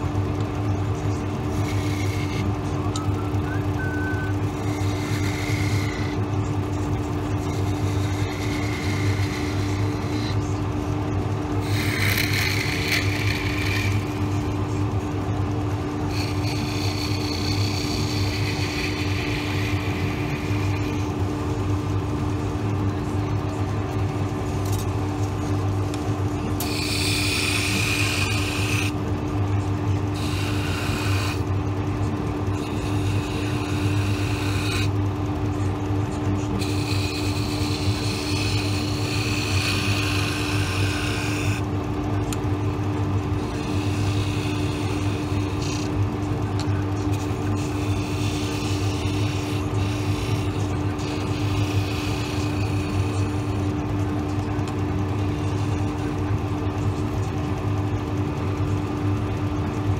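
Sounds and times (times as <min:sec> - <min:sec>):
lathe motor humming: 0:00.0 - 0:59.9
chisel shaving hiss: 0:00.9 - 0:10.6, 0:11.5 - 0:14.5, 0:15.9 - 0:21.2, 0:26.4 - 0:29.0, 0:30.0 - 0:31.5, 0:32.5 - 0:35.0, 0:36.4 - 0:41.7, 0:43.4 - 0:46.0, 0:46.7 - 0:53.6.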